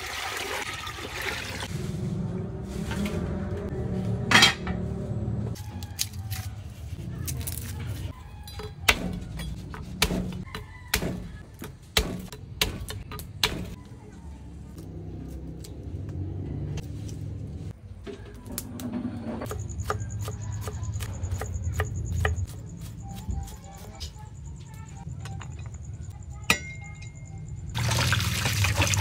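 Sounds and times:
utensils and dishes clinking: 4.2 - 4.8.

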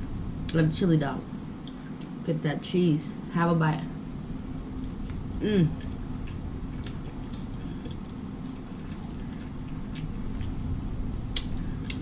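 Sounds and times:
steady low hum: 0.0 - 12.0
wet chewing mouth clicks: 4.8 - 10.6, 11.3 - 12.0.

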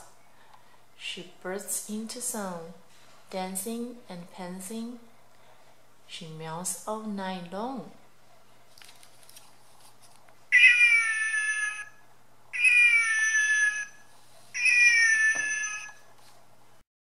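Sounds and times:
recorded cat meow: 10.5 - 11.9, 14.6 - 16.0.

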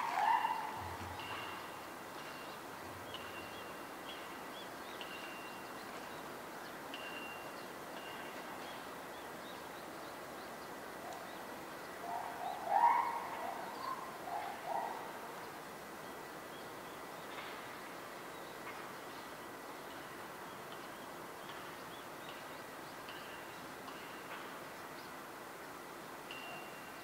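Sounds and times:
birds chirping: 0.0 - 15.0
steady background hiss: 0.0 - 27.0.

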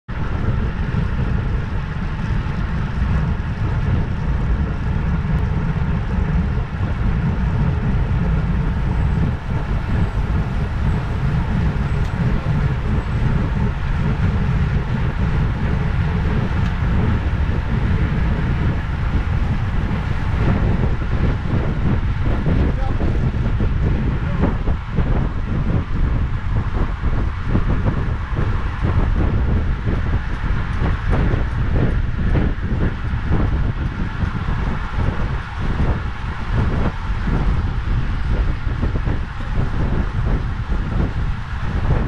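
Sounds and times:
wind rushing over microphone: 0.0 - 42.0.

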